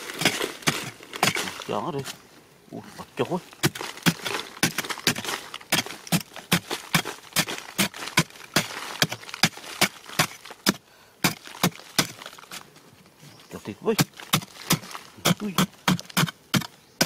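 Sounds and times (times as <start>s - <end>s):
soil crumbling and pattering: 0.0s - 17.0s
metal blade chopping hard earth: 0.1s - 1.6s, 3.6s - 12.3s, 13.8s - 16.7s.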